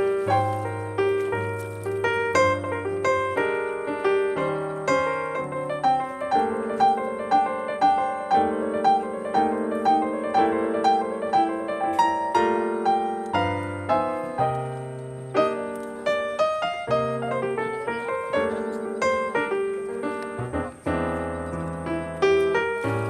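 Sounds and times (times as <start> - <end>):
piano music: 0.0 - 23.0.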